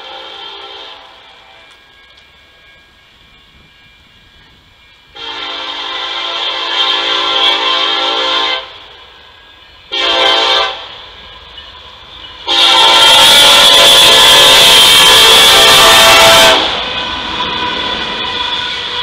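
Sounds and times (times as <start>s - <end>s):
locomotive air horn blasts: 0.0s - 1.3s, 5.1s - 8.8s, 9.9s - 10.9s, 12.4s - 19.0s.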